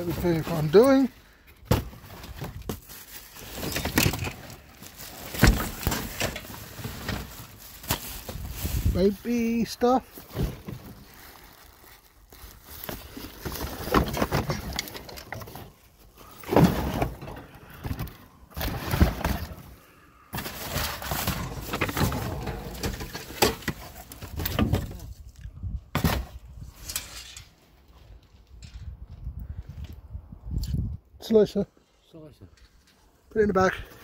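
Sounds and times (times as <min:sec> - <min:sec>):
plastic and cardboard rustling: 0:00.0 - 0:25.3.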